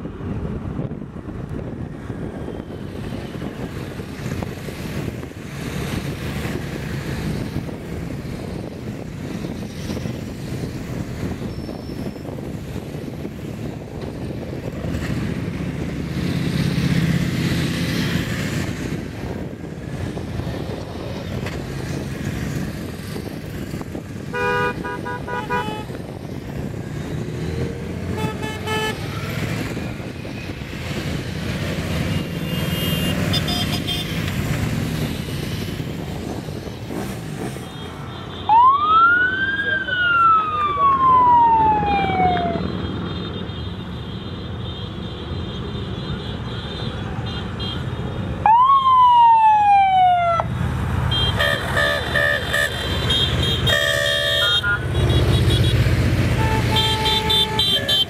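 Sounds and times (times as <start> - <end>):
vehicles driving by: 0.0 - 58.0
horn tooting short blasts: 56.4 - 58.0.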